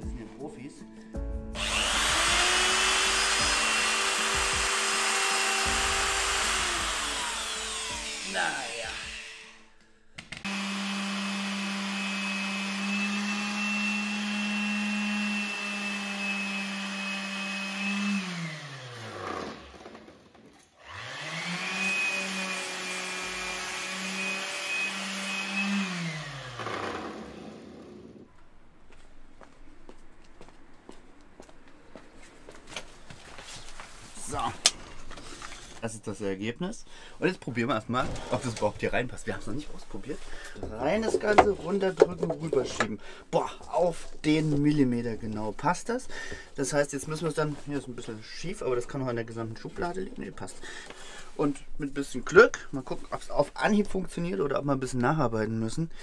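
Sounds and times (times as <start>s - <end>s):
electric wood router whining: 1.6s - 28.3s.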